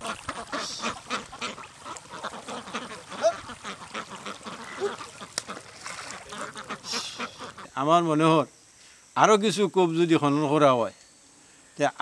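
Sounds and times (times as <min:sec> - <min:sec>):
ducks quacking: 0:00.0 - 0:07.8.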